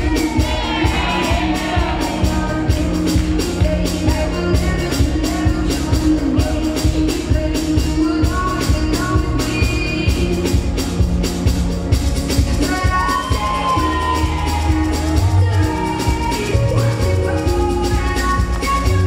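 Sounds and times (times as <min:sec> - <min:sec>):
person singing: 0:00.0 - 0:10.8, 0:12.3 - 0:19.0
loud dance music: 0:00.0 - 0:19.0.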